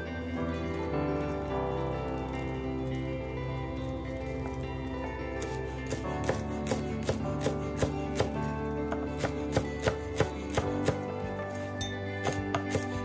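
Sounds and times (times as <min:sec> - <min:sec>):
background music: 0:00.0 - 0:13.0
cleaver chopping on wooden board: 0:05.9 - 0:11.1, 0:12.2 - 0:13.0.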